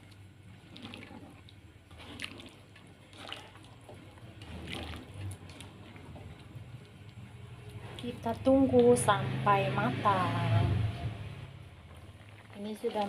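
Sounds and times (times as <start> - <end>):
sauce sloshing: 0.5 - 8.0, 11.8 - 13.0.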